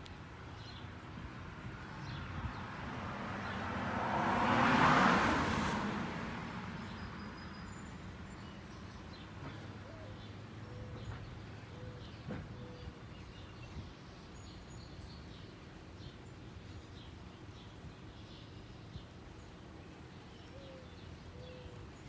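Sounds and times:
vehicle passing on wet road: 0:00.2 - 0:11.8.

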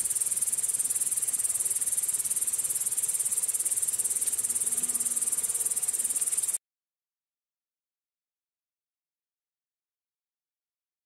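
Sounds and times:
night insects chirring: 0:00.0 - 0:06.6.

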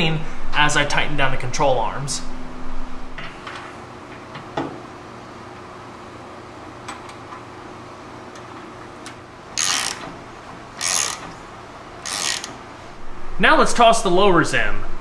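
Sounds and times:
hand ratchet ratcheting: 0:09.6 - 0:10.2, 0:10.8 - 0:11.4, 0:12.0 - 0:12.6.

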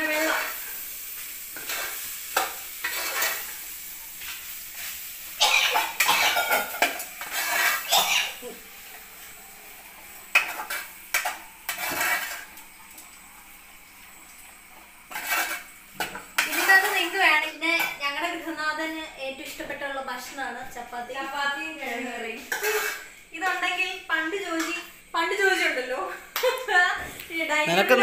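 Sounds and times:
faint sizzling: 0:00.0 - 0:28.0
metal spoon scraping a pot: 0:01.6 - 0:03.5, 0:06.0 - 0:08.4, 0:10.3 - 0:12.5, 0:15.1 - 0:17.2, 0:22.4 - 0:23.1.

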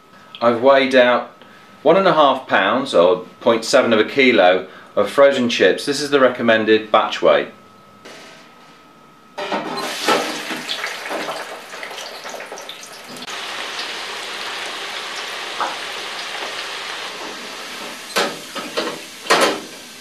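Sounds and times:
chips deep-frying in oil: 0:09.8 - 0:19.2.

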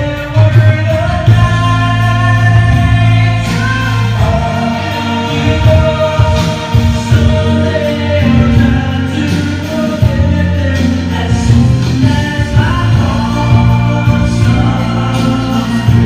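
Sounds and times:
loud song over speakers: 0:00.0 - 0:16.0.

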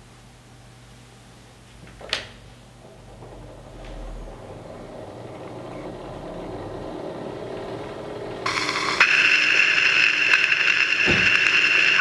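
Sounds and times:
clockwork turntable whirring: 0:02.8 - 0:12.0.

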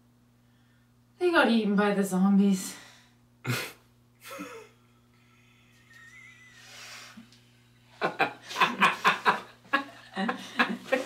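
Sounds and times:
man laughing loudly: 0:03.5 - 0:06.7, 0:08.0 - 0:11.0.

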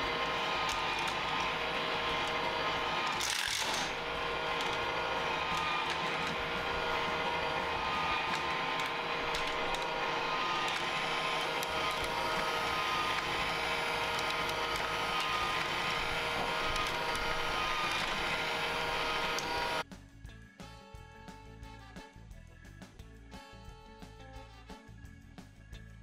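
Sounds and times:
toy motor whirring: 0:00.0 - 0:19.8.

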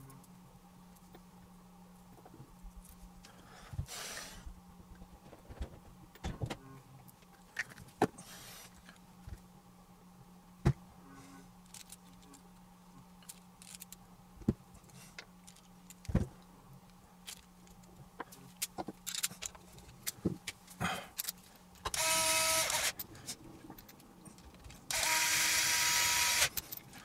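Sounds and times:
steady low hum: 0:00.0 - 0:27.0
metal parts clicking: 0:11.6 - 0:12.4, 0:13.2 - 0:14.0, 0:18.6 - 0:20.2.

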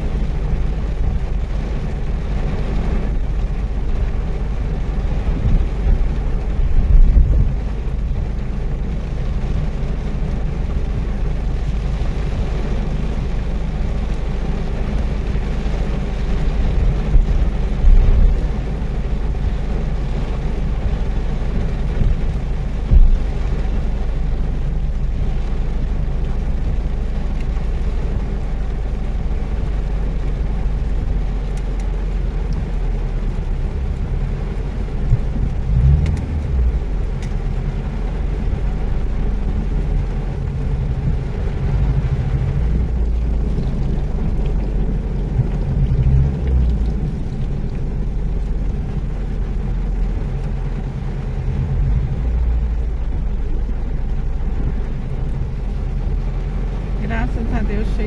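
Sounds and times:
engine and tyre rumble: 0:00.0 - 0:58.0
rain on windshield: 0:00.0 - 0:58.0
low thumps: 0:16.5 - 0:18.8, 0:21.9 - 0:24.4, 0:50.6 - 0:54.0.

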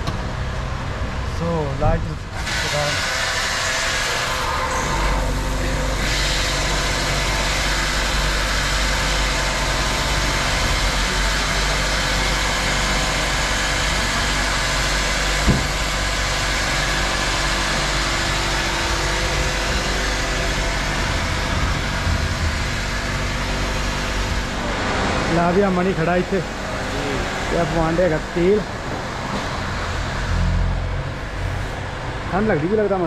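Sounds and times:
fuel pump motor hum: 0:00.0 - 0:33.0
knock: 0:15.4 - 0:15.8.

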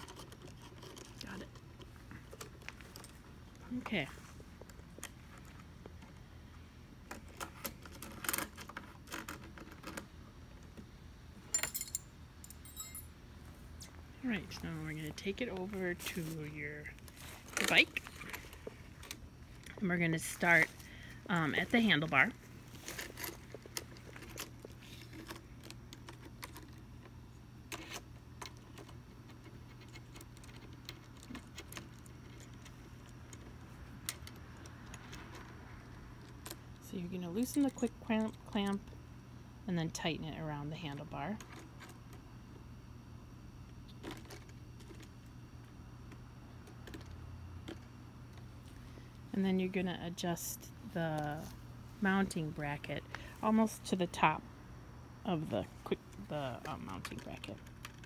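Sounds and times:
small metal clicks and rattles: 0:00.0 - 0:03.7, 0:07.0 - 0:10.7, 0:22.8 - 0:38.9, 0:56.5 - 0:58.0
faint steady low hum: 0:00.0 - 0:58.0
bright metallic clink: 0:11.5 - 0:13.1
light metallic clicks and rattles: 0:11.5 - 0:13.2.

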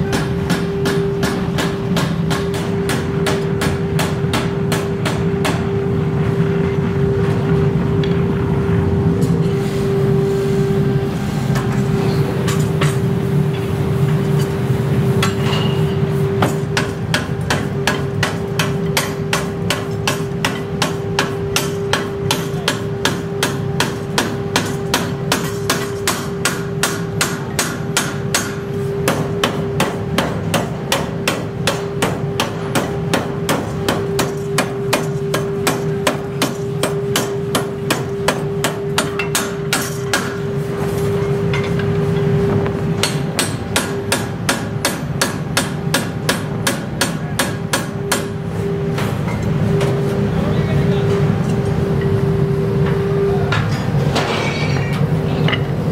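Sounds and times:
power hammer pounding metal: 0:00.0 - 0:05.9, 0:15.2 - 0:40.6, 0:42.9 - 0:48.4
machine humming: 0:00.0 - 0:27.2, 0:48.0 - 0:55.9.

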